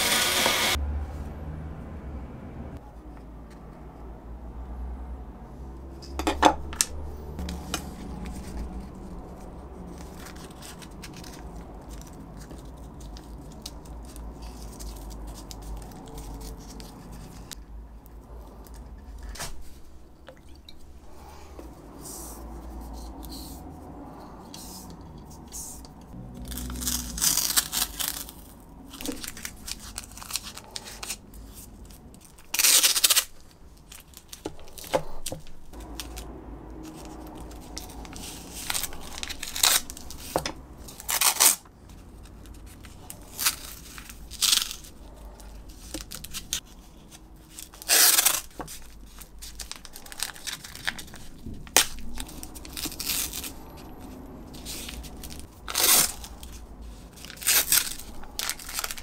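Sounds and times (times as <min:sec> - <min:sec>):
masking tape ripping off roll: 0:00.0 - 0:00.8, 0:26.3 - 0:31.2, 0:32.2 - 0:36.3, 0:36.9 - 0:41.6, 0:42.4 - 0:45.0, 0:47.5 - 0:59.0
tape rustling and crinkling: 0:06.7 - 0:59.0.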